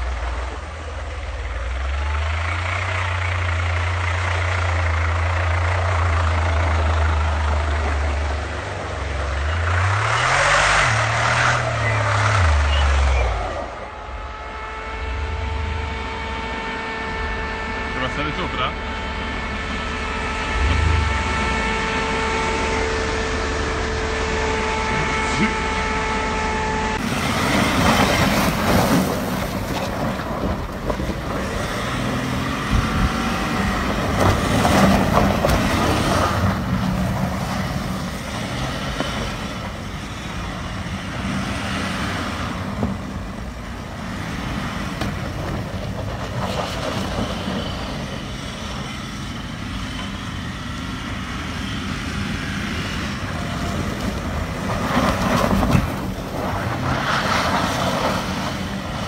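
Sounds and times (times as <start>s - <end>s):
diesel engine under throttle: 0.0s - 59.0s
tyres spinning in snow: 26.2s - 59.0s
wind noise on microphone: 27.1s - 36.2s.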